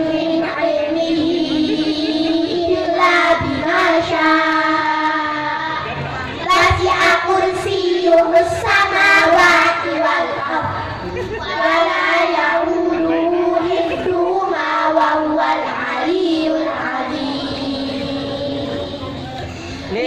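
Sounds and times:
children chanting in unison: 0:00.0 - 0:10.8, 0:11.4 - 0:19.1.

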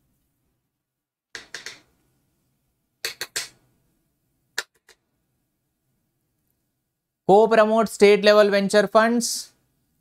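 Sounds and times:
sharp clicks: 0:01.3 - 0:01.9.

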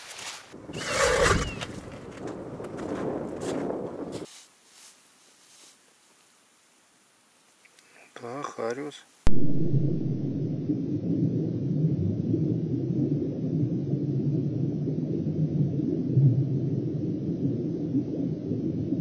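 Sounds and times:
wind buffeting microphone: 0:00.6 - 0:04.3.

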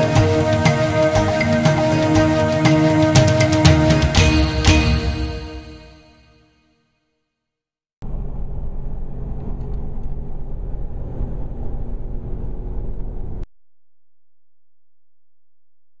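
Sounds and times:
car engine and road rumble: 0:08.0 - 0:13.4.

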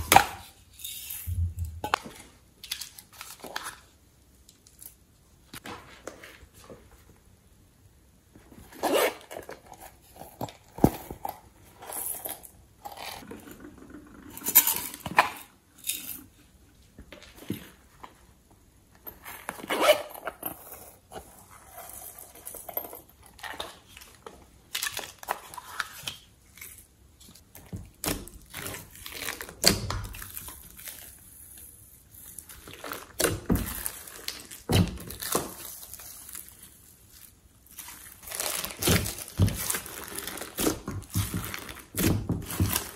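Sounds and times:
zippered pouch opening: 0:19.5 - 0:20.8.

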